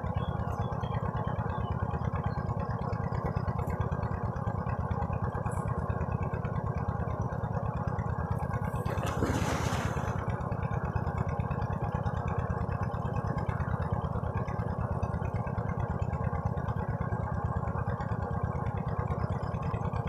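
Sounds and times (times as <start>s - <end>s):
steady low drone: 0.0s - 15.3s
person splashing into water: 8.8s - 10.3s.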